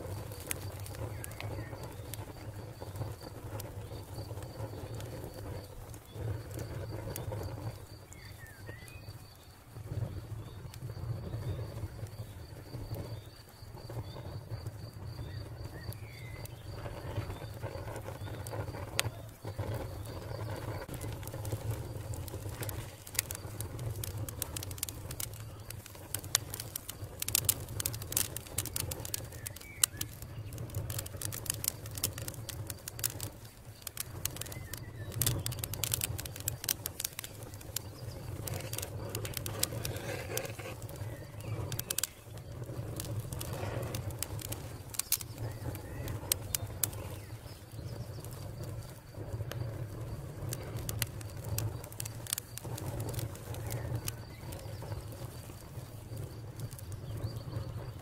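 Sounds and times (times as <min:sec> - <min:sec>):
wood fire crackling and popping: 0:00.0 - 0:58.0.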